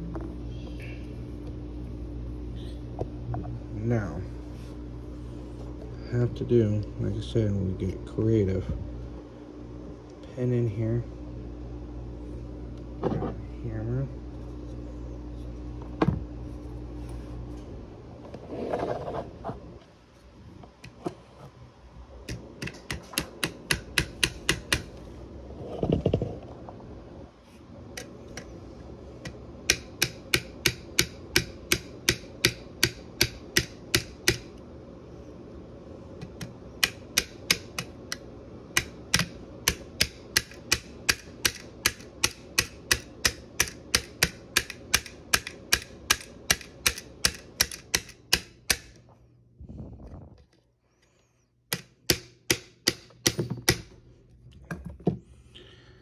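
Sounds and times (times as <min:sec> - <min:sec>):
hammer tapping a pin: 0:22.3 - 0:24.9, 0:29.2 - 0:34.5, 0:36.2 - 0:38.2, 0:38.8 - 0:49.0, 0:51.7 - 0:53.9.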